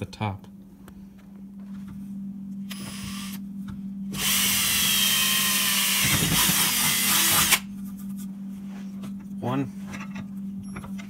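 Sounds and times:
electric drill boring through plastic pipe: 0:04.1 - 0:07.7.

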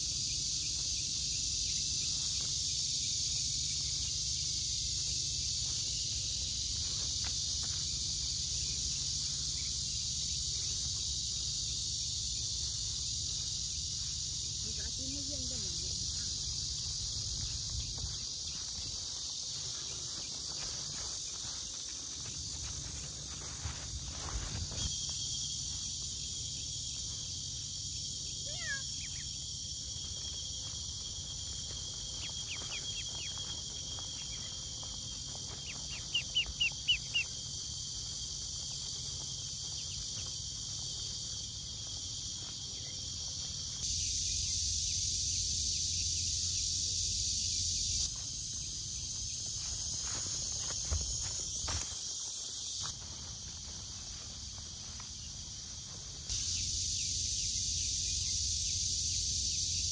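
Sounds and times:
insects droning: 0:00.0 - 0:59.9
ducklings peeping: 0:35.9 - 0:37.3.

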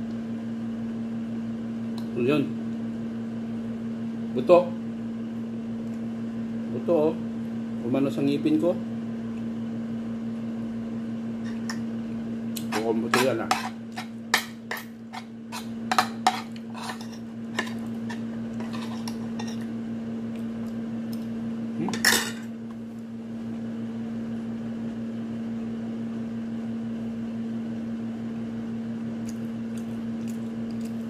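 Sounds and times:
steady low hum: 0:00.0 - 0:31.0
cutlery and dishes clinking: 0:22.0 - 0:22.5.

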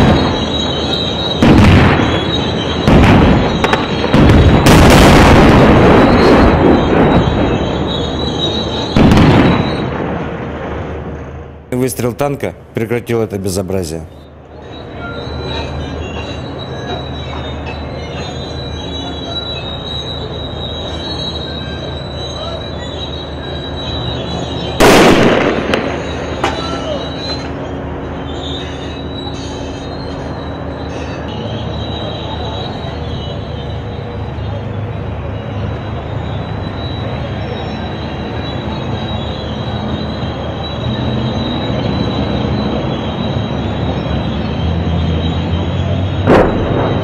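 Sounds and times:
very loud blast: 0:00.0 - 0:12.0, 0:22.2 - 0:27.8, 0:46.0 - 0:47.0
high whine: 0:00.0 - 0:47.0
tank engine and tracks squealing: 0:00.0 - 0:47.0
sharp cracks: 0:01.4 - 0:08.1, 0:24.8 - 0:27.6, 0:46.2 - 0:47.0.

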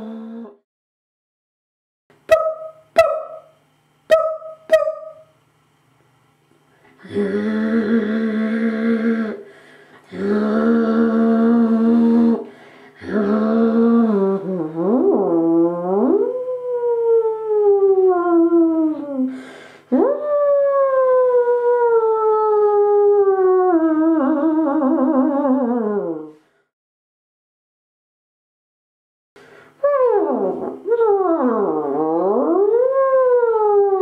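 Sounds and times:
woman vocalizing wordlessly: 0:00.0 - 0:00.6, 0:07.0 - 0:21.4.

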